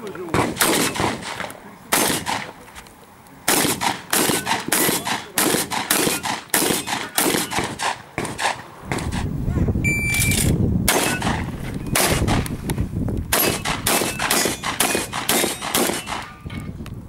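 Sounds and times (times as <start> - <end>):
shotgun shots: 0.3 - 2.5, 3.5 - 9.2, 10.2 - 12.5, 13.3 - 16.4.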